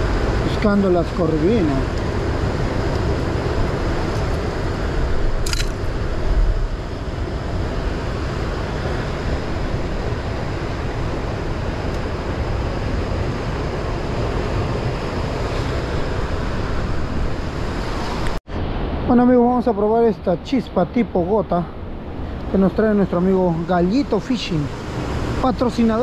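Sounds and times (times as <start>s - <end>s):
wind buffeting microphone: 0.0s - 19.0s
sea surf rushing: 0.0s - 26.0s.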